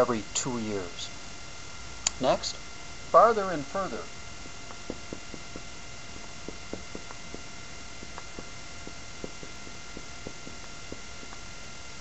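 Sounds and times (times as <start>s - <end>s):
electrical hum and hiss: 0.0s - 12.0s
marker ticking on whiteboard: 6.4s - 11.4s.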